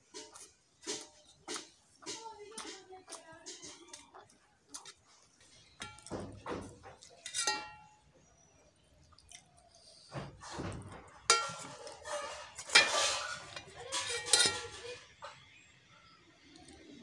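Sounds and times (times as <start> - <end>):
steel dishes clinking: 5.8 - 6.6, 7.2 - 8.0, 10.6 - 15.2.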